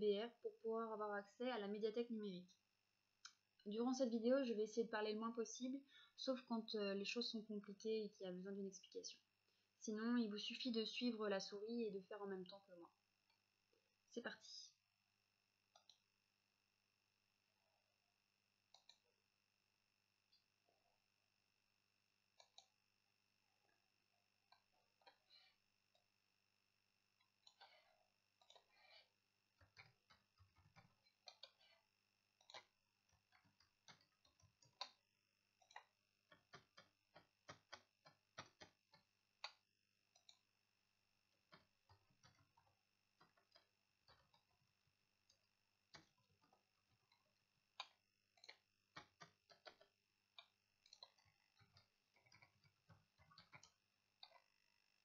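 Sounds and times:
keyboard typing: 0:29.6 - 0:31.8, 0:50.9 - 0:54.4.

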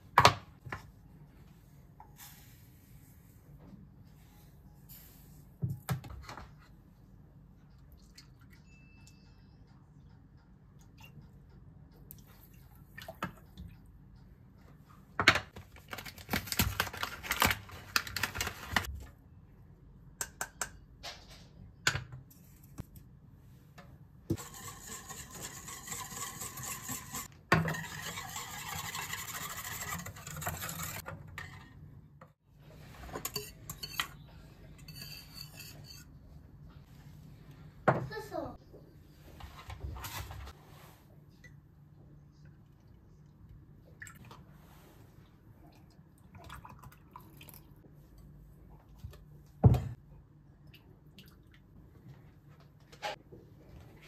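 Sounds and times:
whisk scraping metal pan: 0:24.3 - 0:31.8, 0:34.8 - 0:36.1.

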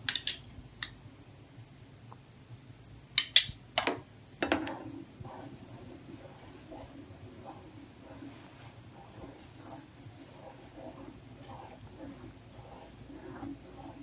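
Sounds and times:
wooden spatula knocking a pan: 0:03.8 - 0:04.9
spatula scraping a pan: 0:04.4 - 0:14.0.

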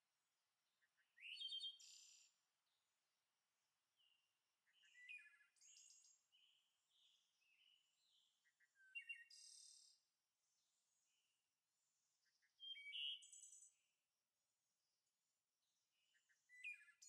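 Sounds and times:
faint bird chirps and trills: 0:00.7 - 0:02.9, 0:04.0 - 0:14.1, 0:15.6 - 0:17.0.

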